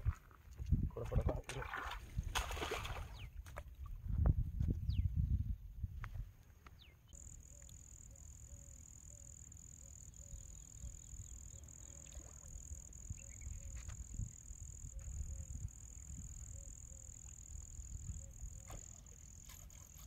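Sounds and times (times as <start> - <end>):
high-pitched insect drone: 7.2 - 20.0.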